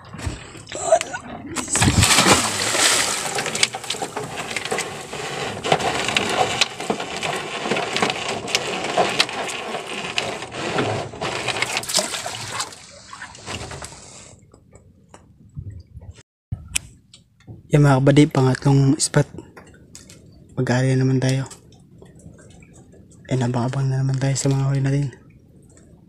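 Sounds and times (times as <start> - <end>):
water splashing against boat hull: 0.0 - 14.3.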